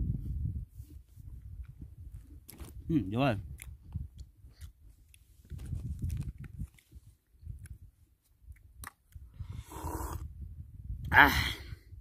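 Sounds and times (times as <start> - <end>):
wind rumbling on microphone: 0.0 - 12.0
man sipping noisily: 9.3 - 10.4.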